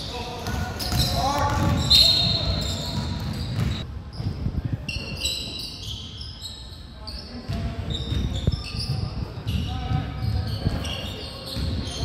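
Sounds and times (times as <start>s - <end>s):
sneakers squeaking: 0.0s - 12.0s
basketball dribbling thuds: 0.4s - 4.4s, 7.5s - 11.9s.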